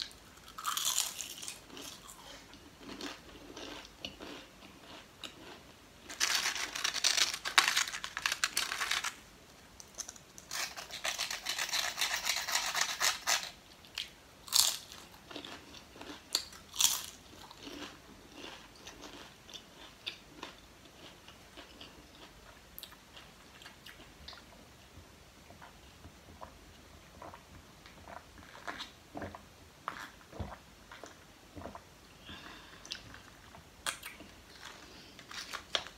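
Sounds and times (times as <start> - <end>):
potato chips crunching: 0.0 - 9.2, 9.8 - 23.0.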